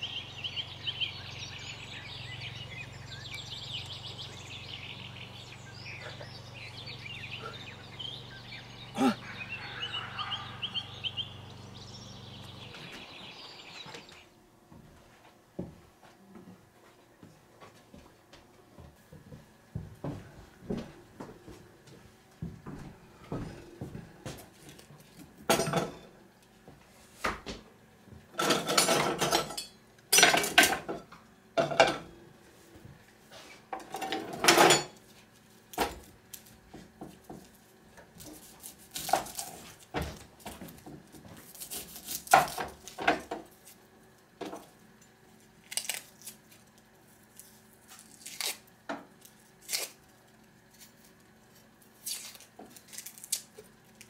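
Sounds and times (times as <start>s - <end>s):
pots and pans clattering: 25.5s - 26.1s, 28.4s - 32.1s, 33.7s - 35.0s.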